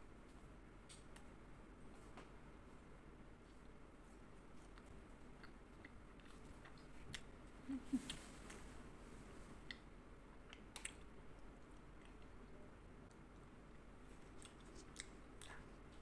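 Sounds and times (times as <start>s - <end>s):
chewing with wet mouth clicks: 4.6s - 7.4s, 9.6s - 16.0s.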